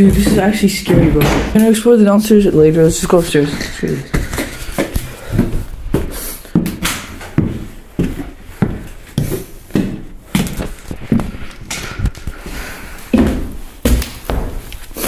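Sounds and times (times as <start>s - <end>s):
footsteps climbing stairs: 0.0s - 15.0s.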